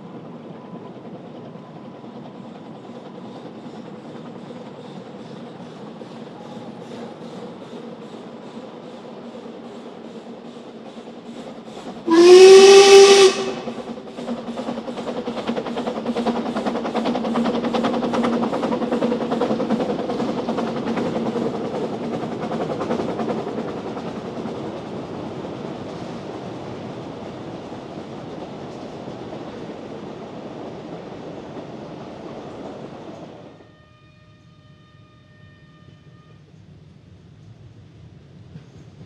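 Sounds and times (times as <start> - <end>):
steam locomotive exhaust beats: 0.0 - 33.6
steam locomotive whistle: 12.1 - 13.9, 33.6 - 36.4.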